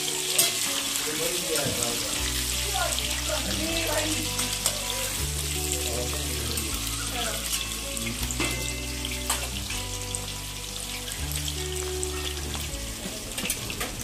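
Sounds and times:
background music with bass: 0:00.0 - 0:14.0
potatoes frying in oil: 0:00.0 - 0:14.0.

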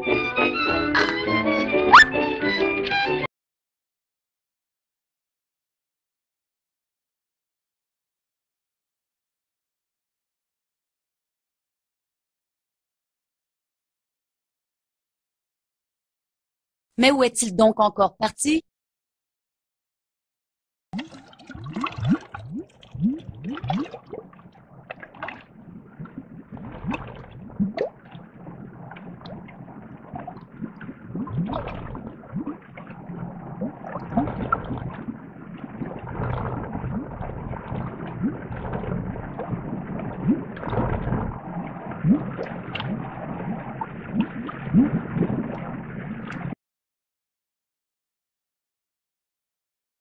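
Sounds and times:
underwater bubbling: 0:21.0 - 0:46.6.

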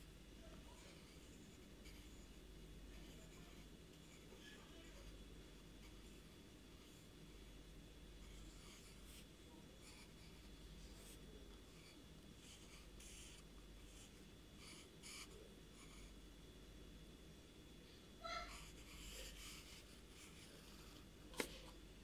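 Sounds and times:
pencil scratching on paper: 0:12.4 - 0:16.0, 0:18.3 - 0:21.0.

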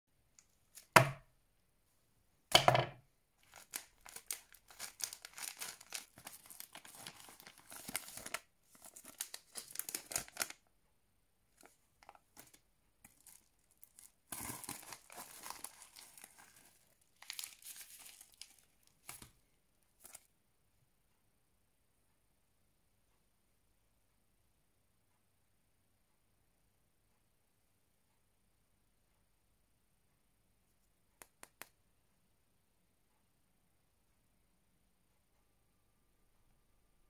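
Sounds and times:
plastic and foil bags crinkling: 0:03.4 - 0:10.7, 0:11.6 - 0:19.4, 0:20.0 - 0:20.2.

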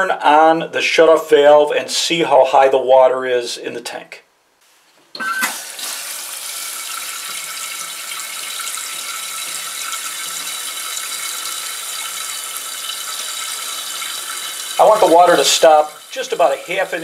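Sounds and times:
toilet tank refilling hiss: 0:05.2 - 0:17.0.

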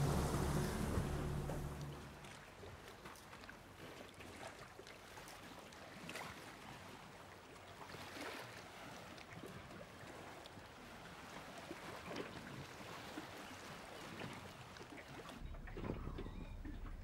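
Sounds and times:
light water splashes: 0:00.0 - 0:17.0
small waves lapping: 0:00.0 - 0:17.0.

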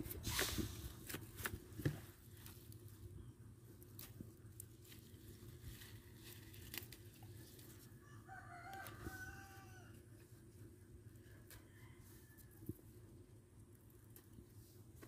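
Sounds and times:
stems snapping and rustling: 0:03.7 - 0:07.9, 0:08.6 - 0:09.2
faint rooster crowing: 0:07.6 - 0:10.3, 0:11.2 - 0:13.0.

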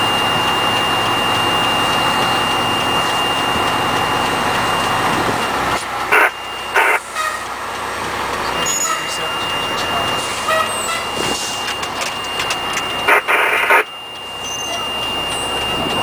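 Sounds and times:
truck engine and road rumble: 0:00.0 - 0:16.0
short loud horn bursts: 0:10.4 - 0:11.1
faint high tone: 0:14.4 - 0:15.6.

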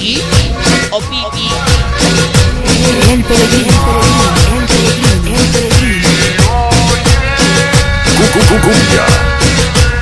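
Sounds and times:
sped-up cumbia music: 0:00.0 - 0:10.0
swooping bass notes: 0:08.1 - 0:09.0.

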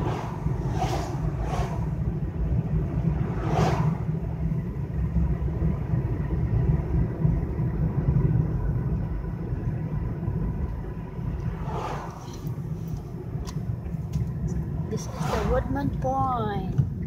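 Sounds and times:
brief whoosh: 0:00.0 - 0:02.1, 0:03.1 - 0:04.1, 0:11.5 - 0:12.6
car road and engine rumble: 0:00.0 - 0:17.0.

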